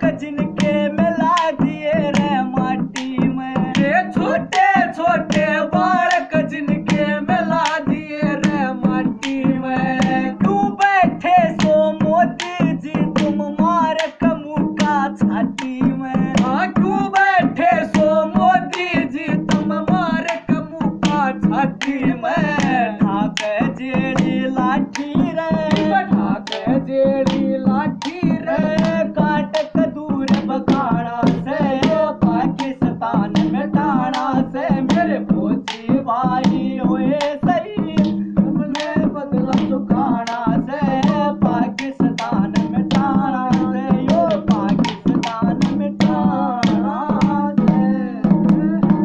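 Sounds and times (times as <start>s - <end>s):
clay pots struck in rhythm: 0.0s - 49.0s
two men singing: 0.0s - 49.0s.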